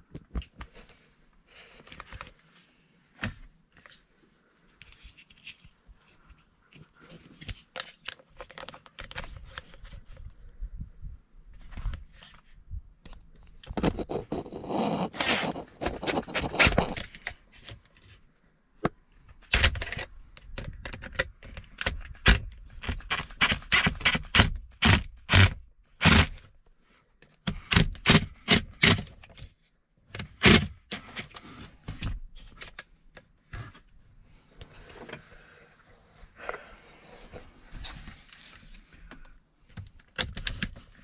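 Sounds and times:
plastic handling clicks and knocks: 0:18.8 - 0:23.3, 0:39.0 - 0:41.0.

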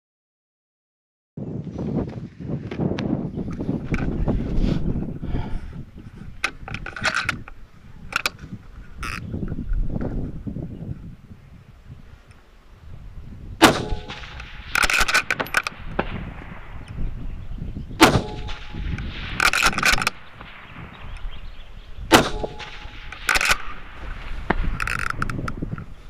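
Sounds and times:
rifle shots with echo: 0:13.6 - 0:16.9, 0:18.0 - 0:21.1, 0:22.1 - 0:24.7
rattle of metallic clicks: 0:14.0 - 0:15.8, 0:18.0 - 0:20.2, 0:22.5 - 0:23.7, 0:24.7 - 0:25.6.

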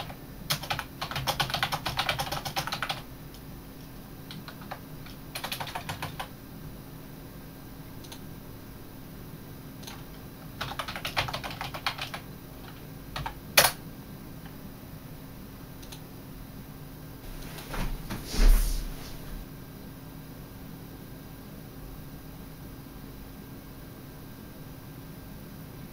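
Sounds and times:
typing on a keyboard: 0:00.0 - 0:03.0, 0:04.3 - 0:06.3, 0:09.8 - 0:10.0, 0:10.6 - 0:13.8
rustle with a thump: 0:17.2 - 0:19.4.

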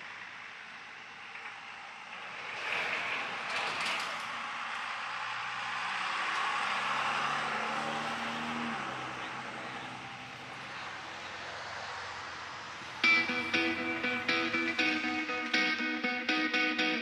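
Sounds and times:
passing engine drone: 0:05.2 - 0:17.0
electric guitar music: 0:13.0 - 0:17.0.

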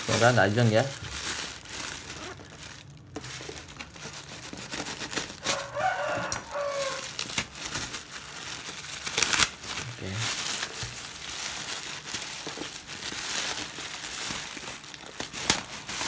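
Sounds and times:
plastic bag rustling: 0:00.0 - 0:16.0
rooster crowing: 0:05.4 - 0:07.2.

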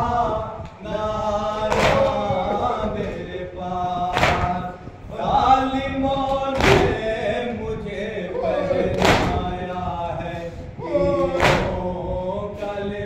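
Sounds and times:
men chanting a lament: 0:00.0 - 0:13.0.

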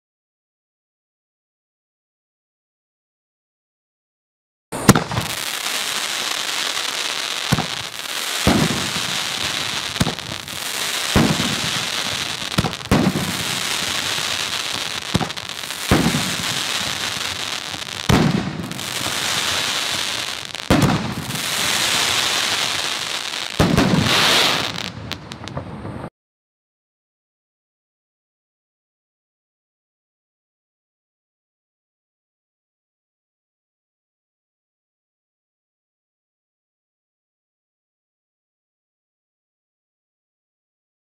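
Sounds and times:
fireworks aerial bursts: 0:04.7 - 0:26.1
fireworks launch thumps: 0:04.8 - 0:05.5, 0:07.5 - 0:26.1
fireworks hissing: 0:04.8 - 0:25.6.

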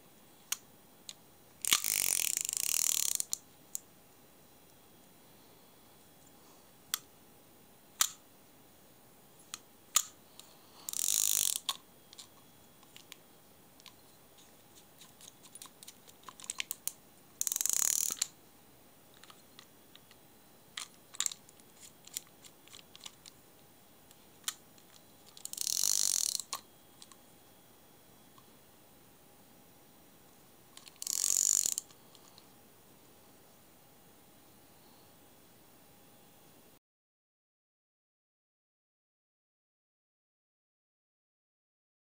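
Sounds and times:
fishing reel whirring: 0:01.6 - 0:03.4, 0:10.9 - 0:11.7, 0:17.4 - 0:18.2, 0:25.4 - 0:26.5, 0:31.0 - 0:31.8
reel mechanism clicks: 0:01.6 - 0:03.4, 0:10.9 - 0:11.8, 0:16.4 - 0:18.3, 0:25.4 - 0:26.6, 0:30.8 - 0:31.9.

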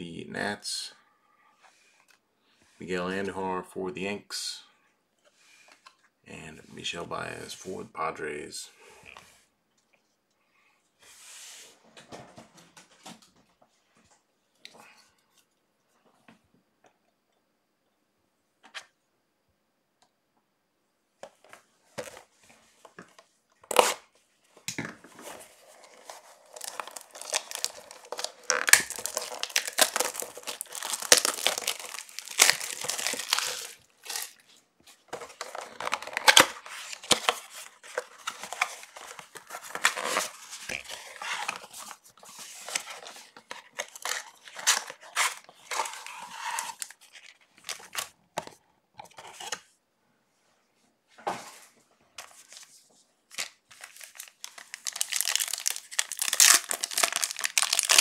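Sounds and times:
wrappers tearing and crinkling: 0:23.7 - 0:24.0, 0:25.3 - 0:48.1, 0:53.3 - 0:58.0.

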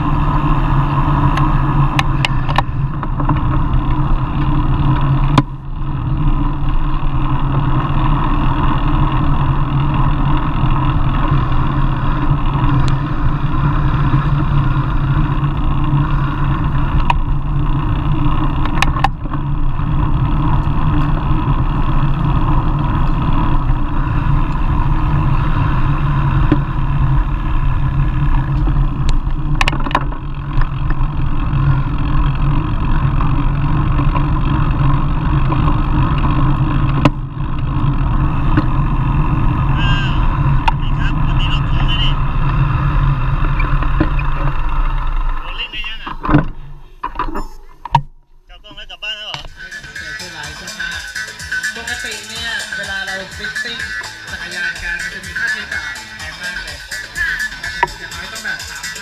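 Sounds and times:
wind and road noise: 0:00.0 - 0:59.0
bicycle clicks and knocks: 0:00.5 - 0:24.9, 0:25.6 - 0:39.5.

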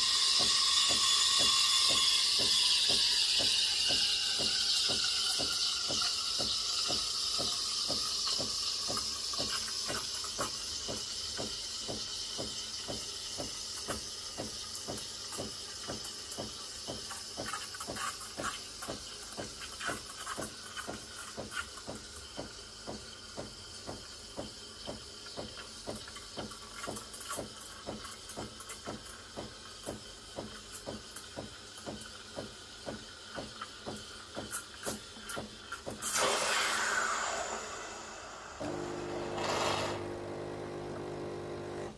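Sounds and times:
steam wand hissing: 0:00.0 - 0:22.5, 0:30.4 - 0:41.0.

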